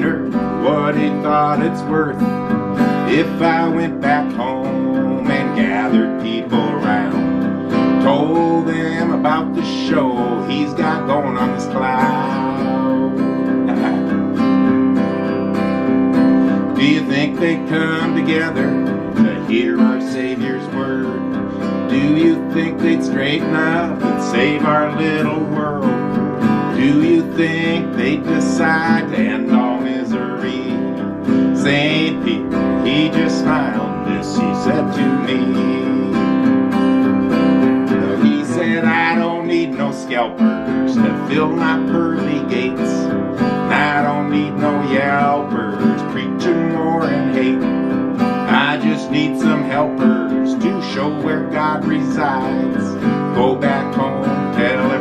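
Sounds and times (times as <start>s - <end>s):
acoustic guitar strummed with a pick: 0.0s - 55.0s.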